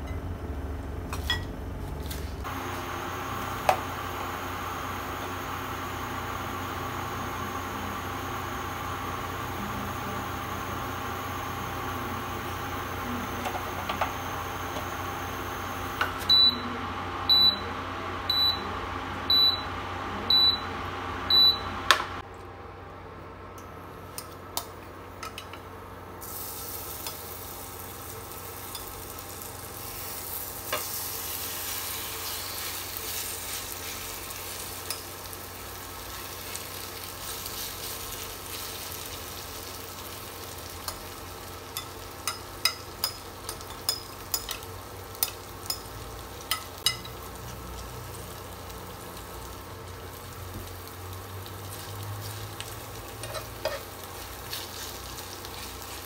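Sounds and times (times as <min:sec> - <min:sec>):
cooktop beeping: 0:00.0 - 0:01.6, 0:02.5 - 0:22.2, 0:26.2 - 0:47.8
batter sizzling in oil: 0:26.2 - 0:56.0.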